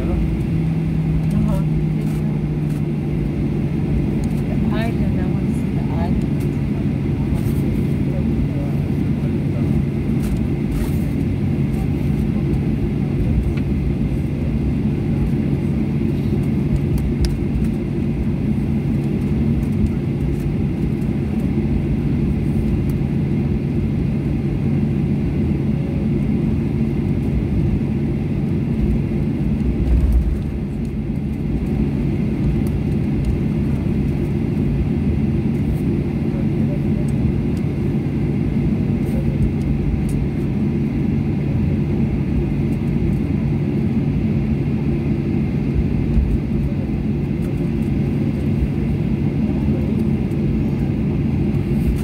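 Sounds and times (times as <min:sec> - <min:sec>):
jet cabin engine hum: 0:00.0 - 0:52.0
low rumble: 0:27.1 - 0:35.8.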